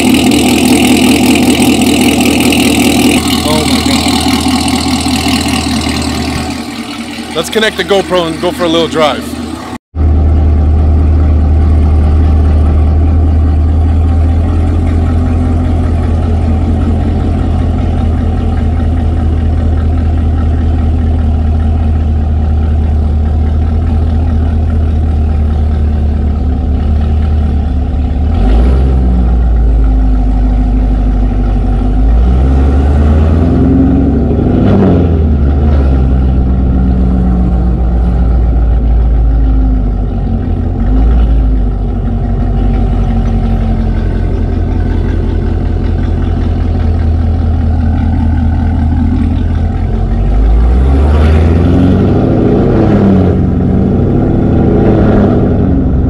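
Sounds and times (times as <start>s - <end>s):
car engine idling and revving: 0.0s - 56.0s.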